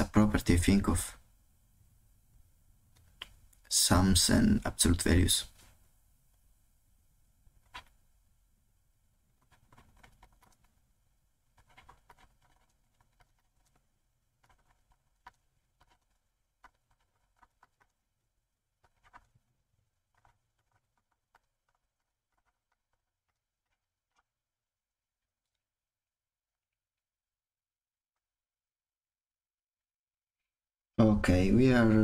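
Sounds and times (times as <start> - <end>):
stylus tapping on tablet screen: 20.1 - 24.3.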